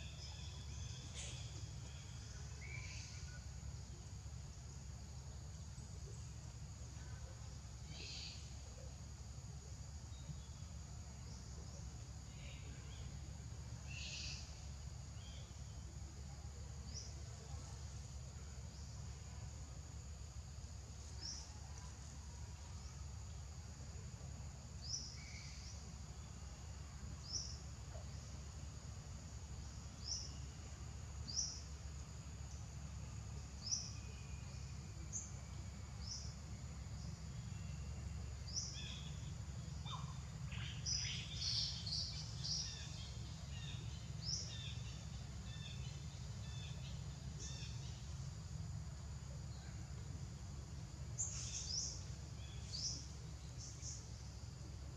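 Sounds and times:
bird chirping: 0:00.0 - 0:03.5
insect drone: 0:00.0 - 0:54.9
low steady rumble: 0:00.0 - 0:54.9.

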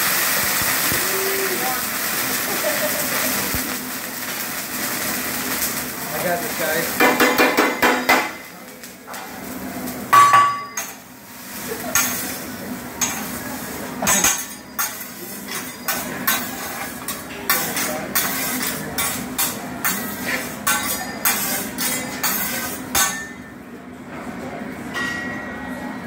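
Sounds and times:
metal spatulas tapping on griddle: 0:07.0 - 0:08.4, 0:10.1 - 0:11.0, 0:11.9 - 0:12.2, 0:14.0 - 0:23.4
loud ringing metal clang: 0:10.1 - 0:11.0, 0:24.9 - 0:25.7.

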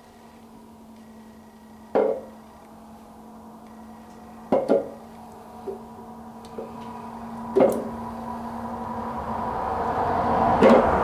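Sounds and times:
faint steady hum: 0:00.0 - 0:11.0
metal knocks of cylinder head: 0:01.9 - 0:02.3, 0:04.5 - 0:05.0.

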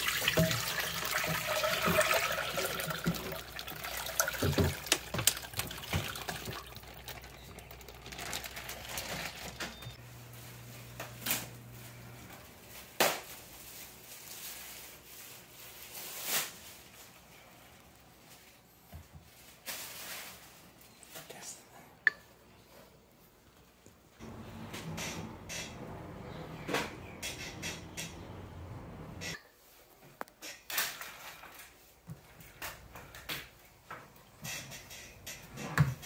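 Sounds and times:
liquid pouring into metal saucepan: 0:00.0 - 0:09.4.

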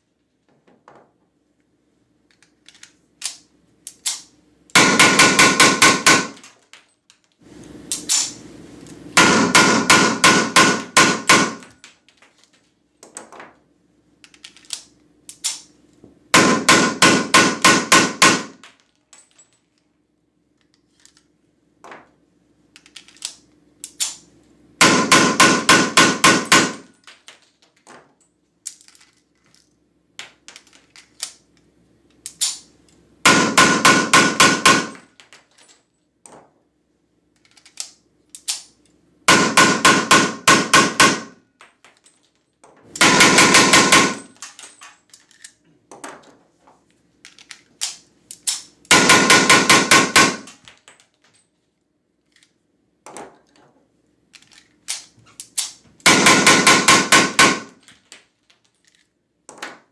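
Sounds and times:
blank pistol rapid shots: 0:04.8 - 0:06.4, 0:09.2 - 0:11.6, 0:16.4 - 0:18.6, 0:24.8 - 0:26.9, 0:33.2 - 0:35.0, 0:39.3 - 0:41.4, 0:43.0 - 0:44.4, 0:48.9 - 0:50.6, 0:56.0 - 0:57.8.

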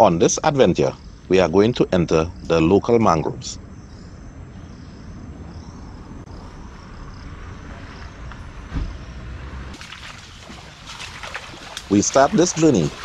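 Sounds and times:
thump: 0:08.6 - 0:09.2.

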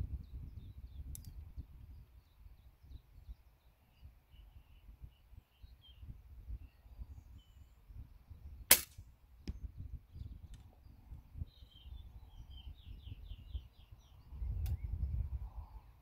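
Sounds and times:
bow string snap: 0:08.7 - 0:09.0.

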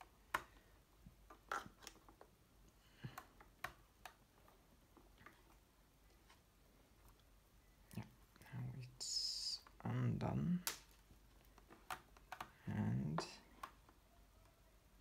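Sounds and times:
fingers working wire into liner: 0:10.6 - 0:14.7.

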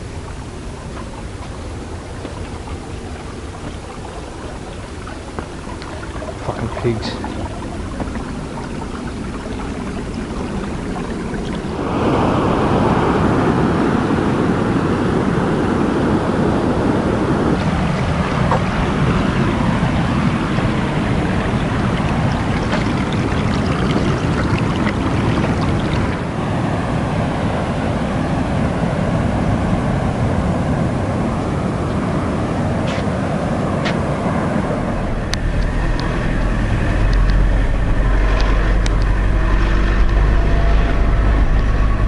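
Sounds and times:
ocean surf washing onto beach: 0:00.0 - 0:42.0
wind rumbling on microphone: 0:00.0 - 0:42.0.

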